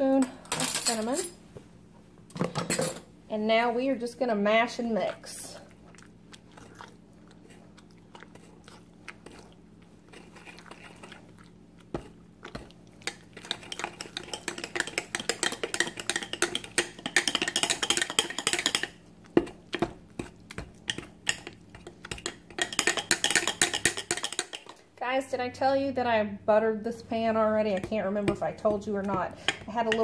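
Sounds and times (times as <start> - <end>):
potato masher squelching: 27.1 - 30.0.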